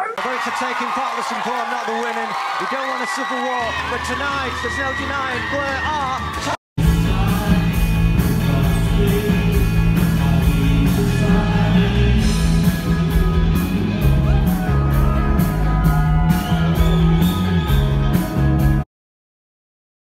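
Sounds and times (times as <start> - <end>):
live rock band playing: 6.8 - 18.8.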